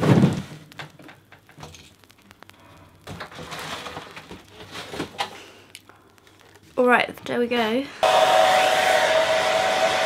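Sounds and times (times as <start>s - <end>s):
rustling of handled items: 0.0s - 7.6s.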